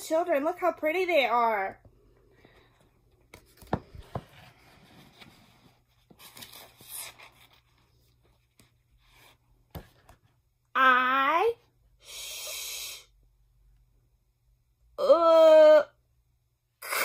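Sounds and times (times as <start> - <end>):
paper pages rustling: 2.6 - 10.3
book knocking: 3.6 - 4.4.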